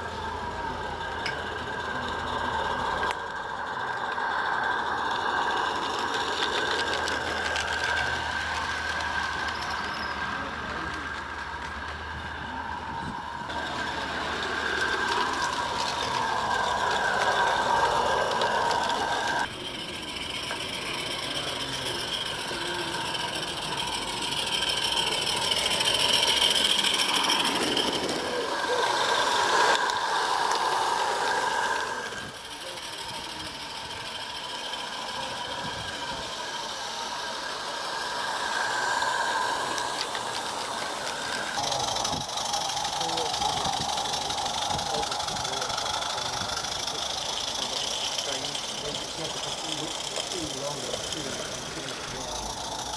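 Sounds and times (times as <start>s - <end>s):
steam locomotive hissing and chuffing: 0.0s - 52.9s
wheels rattling on rails: 0.0s - 52.9s.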